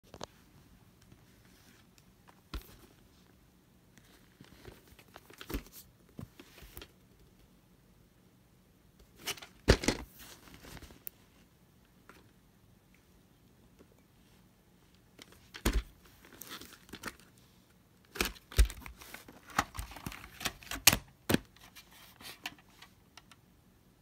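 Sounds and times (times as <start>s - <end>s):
plastic tape case rustling: 4.0s - 7.0s, 9.0s - 11.2s, 15.1s - 17.4s, 18.0s - 23.3s.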